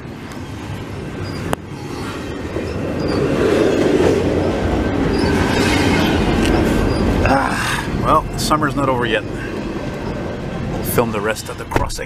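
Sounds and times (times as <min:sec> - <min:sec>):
freight train rumbling past: 0:00.0 - 0:12.0.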